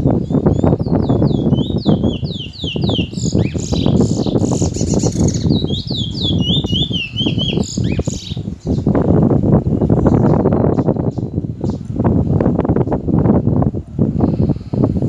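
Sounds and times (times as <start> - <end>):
bullfinch whistling song: 0.2 - 8.9.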